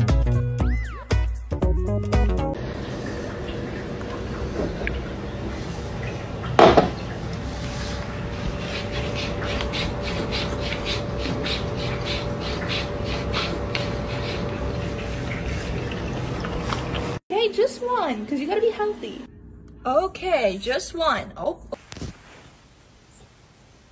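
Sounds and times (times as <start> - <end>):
cat lapping water: 3.0 - 17.2.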